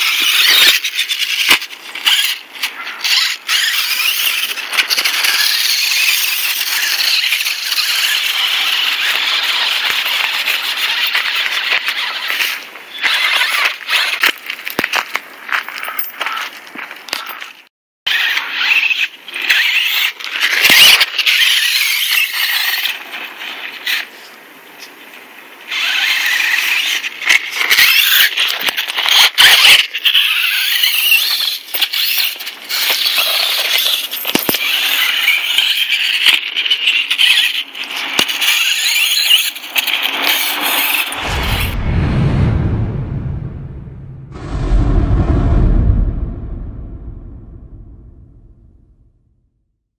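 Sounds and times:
deep boom: 0:41.2 - 0:49.4.

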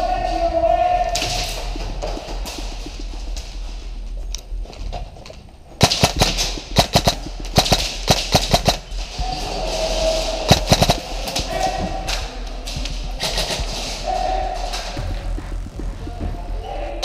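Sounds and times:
airsoft guns firing bursts: 0:05.8 - 0:09.0, 0:10.5 - 0:11.1.

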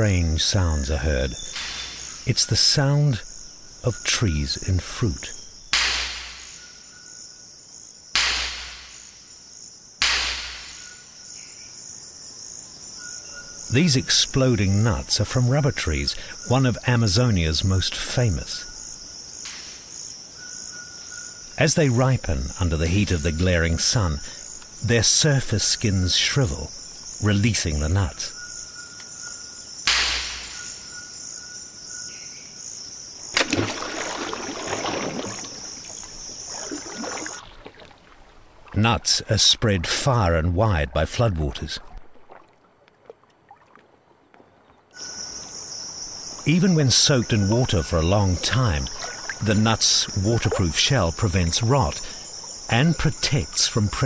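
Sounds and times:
insects buzzing: 0:00.0 - 0:42.8, 0:44.6 - 0:54.0
seed pods bursting with sharp cracks: 0:05.7 - 0:06.6, 0:08.2 - 0:09.0, 0:10.0 - 0:10.8, 0:29.9 - 0:30.7, 0:33.3 - 0:35.3
nut splashing into water: 0:33.3 - 0:38.8.

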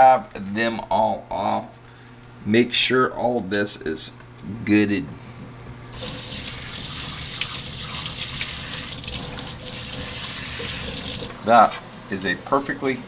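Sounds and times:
faucet water splashing into sink: 0:05.9 - 0:13.0.

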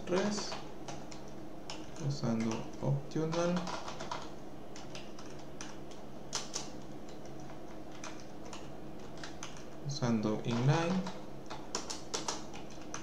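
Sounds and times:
steady low hum: 0:00.0 - 0:13.0
keyboard key clicks: 0:10.4 - 0:13.0.

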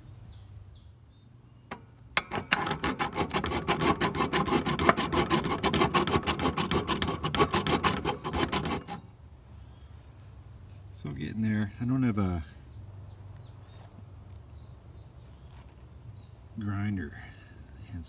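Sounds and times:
hand file rasping on steel: 0:02.2 - 0:09.1.

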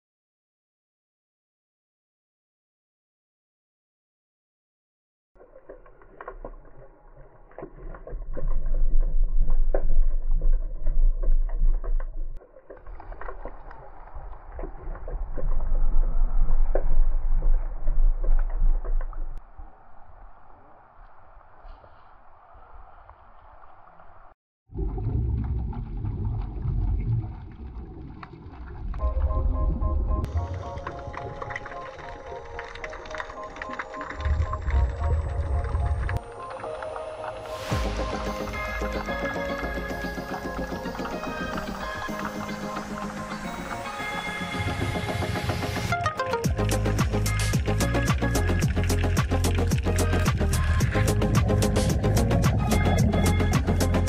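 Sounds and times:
underwater clicks and pops: 0:05.4 - 0:19.4, 0:30.2 - 0:37.6, 0:45.8 - 0:54.0
water sloshing: 0:05.4 - 0:19.4, 0:24.8 - 0:37.7
loud low underwater rumble: 0:07.8 - 0:12.4, 0:13.4 - 0:19.8, 0:24.7 - 0:31.7, 0:34.0 - 0:36.2, 0:46.5 - 0:54.0
music: 0:29.0 - 0:54.0.

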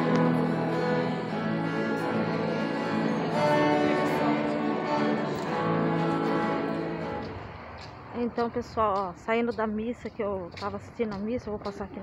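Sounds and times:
hymn music with guitar: 0:00.0 - 0:08.3.

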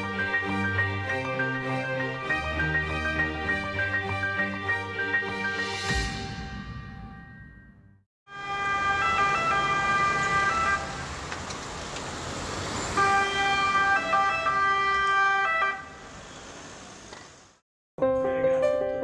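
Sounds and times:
ambulance two-tone siren: 0:08.3 - 0:11.1, 0:12.8 - 0:16.0
traffic noise: 0:08.3 - 0:17.6.

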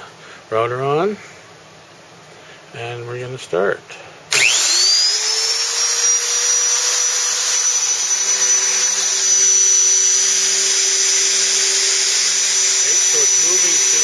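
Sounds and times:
wood router motor whine: 0:04.3 - 0:14.0.

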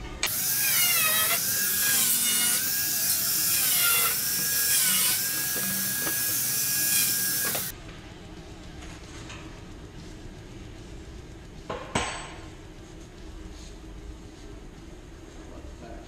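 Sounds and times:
angle grinder cutting steel: 0:00.2 - 0:07.7.

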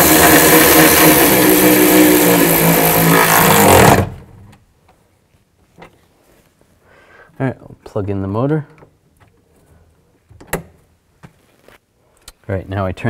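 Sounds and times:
electric ratchet running: 0:00.0 - 0:04.4.

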